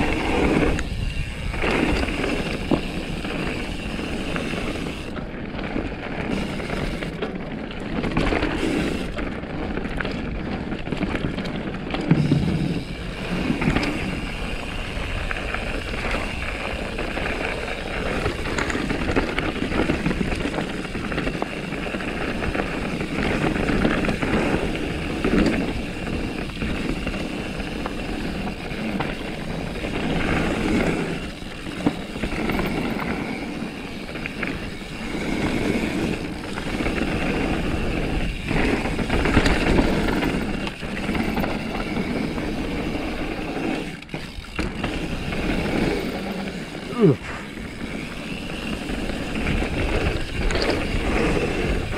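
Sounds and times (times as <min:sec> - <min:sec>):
bike rattling over bumps: 0:00.0 - 0:51.9
tyre and wind noise: 0:00.0 - 0:51.9.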